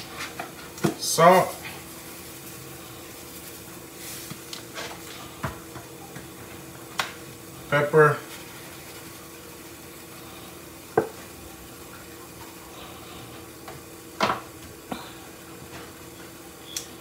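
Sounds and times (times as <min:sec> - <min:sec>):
steady low hum: 0:00.0 - 0:17.0
pepper shaker shaking: 0:08.2 - 0:09.4.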